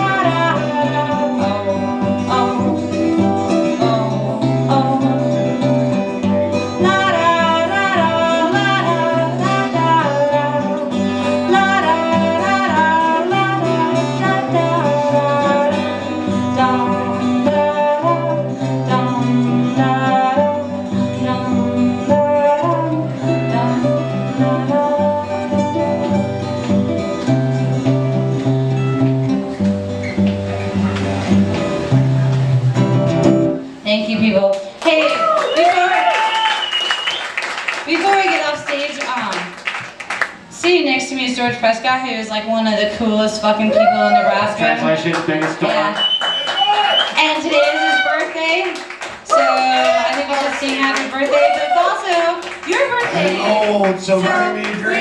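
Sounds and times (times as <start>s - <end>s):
woman singing: 0.0s - 6.0s, 6.7s - 26.4s, 54.2s - 55.0s
acoustic guitars: 0.0s - 55.0s.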